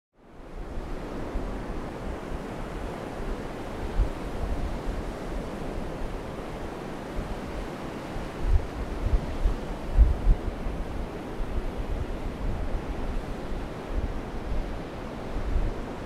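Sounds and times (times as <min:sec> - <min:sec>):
wind buffeting microphone: 0:00.5 - 0:16.0
ocean surf breaking: 0:01.6 - 0:16.0.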